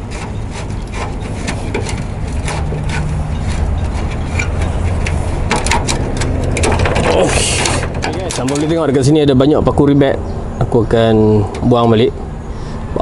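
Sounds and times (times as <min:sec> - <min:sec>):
screwdriver scraping metal rivets: 0:00.0 - 0:09.1.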